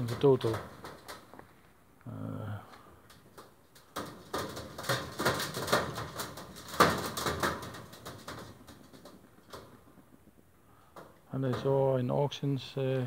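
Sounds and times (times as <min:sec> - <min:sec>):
pigeons knocking against wire cage: 0:00.0 - 0:01.3, 0:03.1 - 0:09.9.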